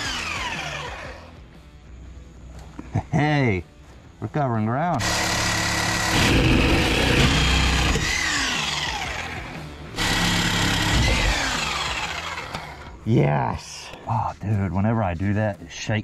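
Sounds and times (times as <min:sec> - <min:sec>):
reciprocating saw cutting steel: 0:00.0 - 0:01.3, 0:05.0 - 0:13.0.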